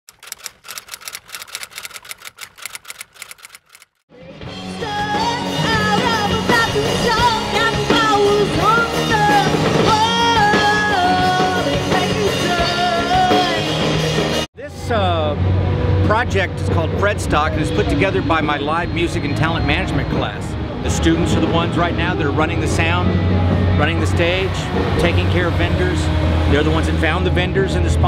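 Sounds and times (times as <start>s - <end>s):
sharp percussive clicks: 0.1s - 4.0s
woman singing: 4.1s - 13.7s
bass and drums: 4.1s - 28.0s
electric guitars: 4.2s - 28.0s.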